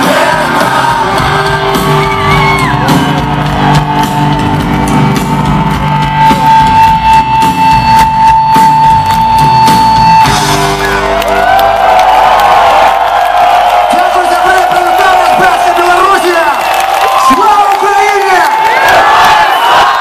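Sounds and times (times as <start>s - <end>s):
live rock band: 0.0s - 13.2s.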